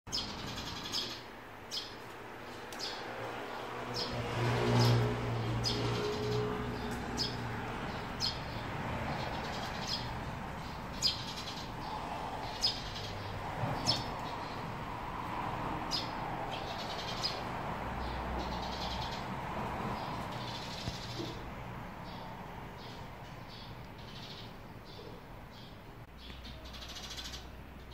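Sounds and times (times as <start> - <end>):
sparrows chirping: 0.1 - 27.9.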